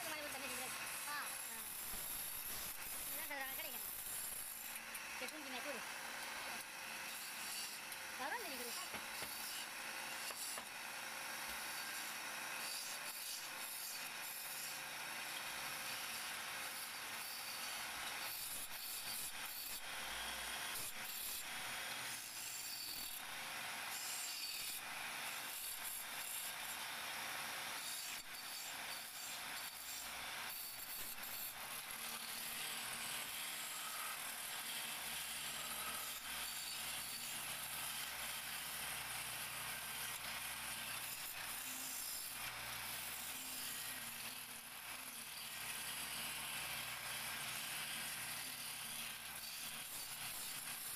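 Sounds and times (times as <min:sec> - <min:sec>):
chisel shaving wood on lathe: 0:00.0 - 0:10.6, 0:31.2 - 0:38.4.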